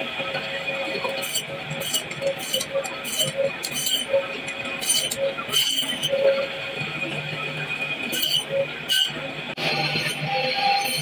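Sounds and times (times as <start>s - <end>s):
band saw whining: 0.8s - 11.0s
fish scraping against saw blade: 1.2s - 4.2s, 4.8s - 6.2s, 8.1s - 9.2s.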